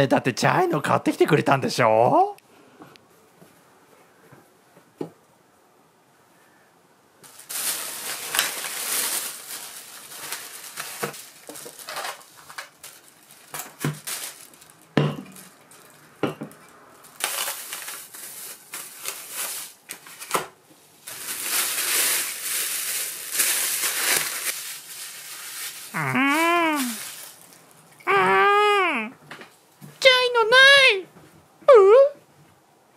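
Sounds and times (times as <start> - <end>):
plastic bags rustling: 7.2 - 28.6.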